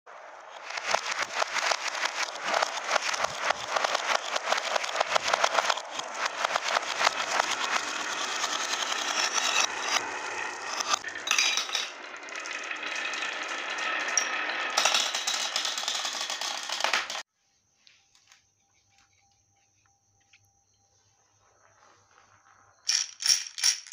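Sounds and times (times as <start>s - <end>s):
marbles rolling on wooden track: 0.4s - 17.3s, 22.7s - 23.9s.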